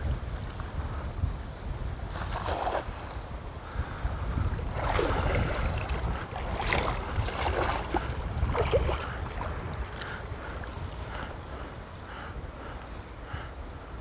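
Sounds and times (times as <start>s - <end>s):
choppy seawater lapping: 0.0s - 14.0s
wind rumbling on microphone: 0.0s - 14.0s
water splashes: 2.1s - 3.1s, 4.4s - 11.5s.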